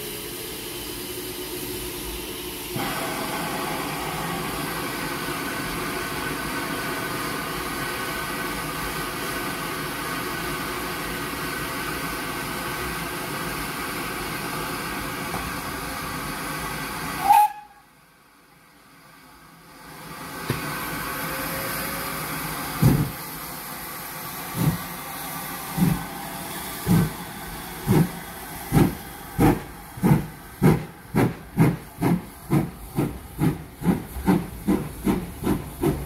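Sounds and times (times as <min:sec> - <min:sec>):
steam hissing: 0:02.7 - 0:17.8, 0:20.1 - 0:36.0.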